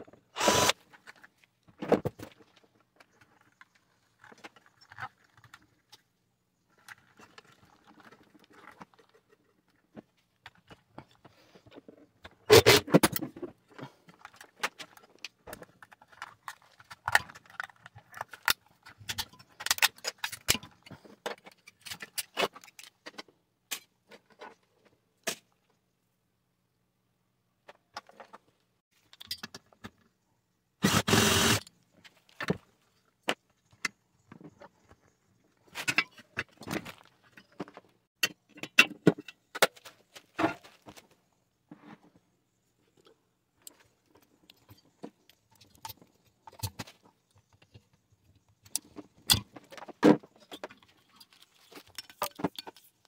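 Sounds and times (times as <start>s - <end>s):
small metal parts and tools clinking: 2.1s - 24.7s, 29.0s - 30.1s, 42.9s - 53.0s.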